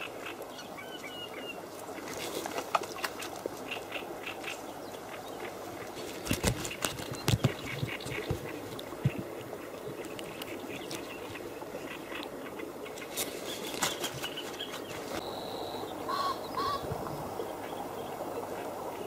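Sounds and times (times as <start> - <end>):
hands rustling and clicking: 5.9 - 11.1
bird calling: 9.8 - 18.7.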